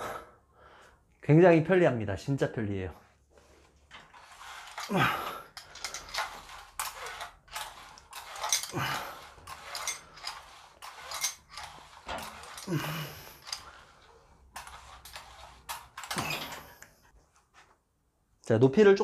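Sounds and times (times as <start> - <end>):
metal hooks clicking and rattling: 3.9 - 13.8, 14.6 - 16.8.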